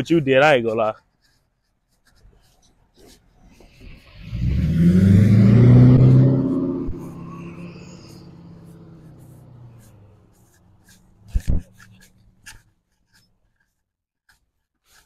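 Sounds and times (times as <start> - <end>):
vehicle engine accelerating past: 3.9 - 10.4.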